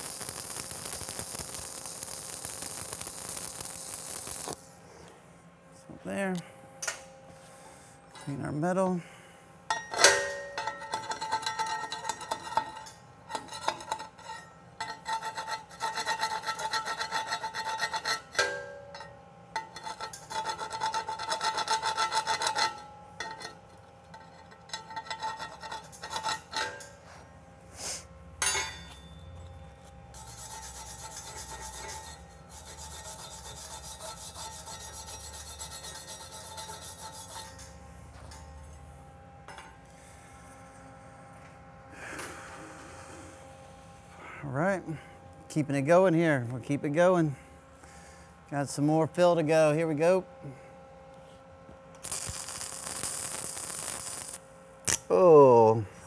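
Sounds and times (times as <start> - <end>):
wire brush scrubbing steel: 10.9 - 18.3, 30.1 - 37.7
faint metallic ring: 28.4 - 30.0.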